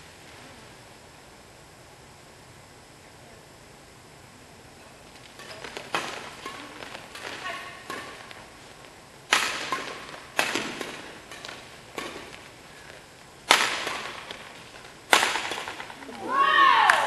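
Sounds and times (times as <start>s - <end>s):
badminton rackets striking shuttlecock: 5.3s - 16.2s.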